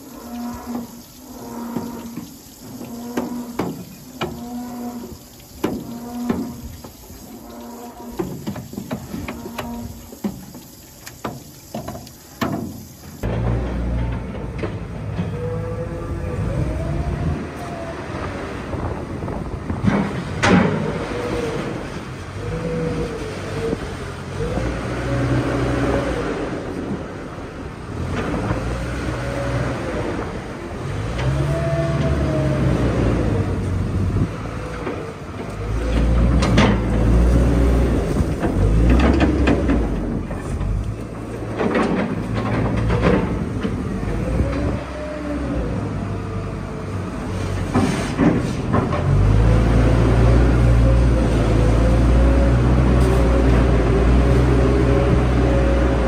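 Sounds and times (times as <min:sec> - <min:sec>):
loader diesel engine revving: 0:13.2 - 0:56.0.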